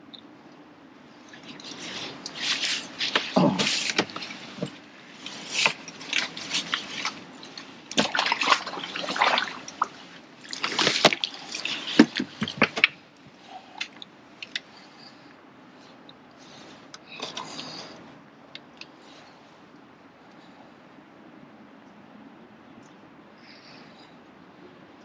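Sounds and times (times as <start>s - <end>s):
water splashing and dripping: 1.3s - 13.0s.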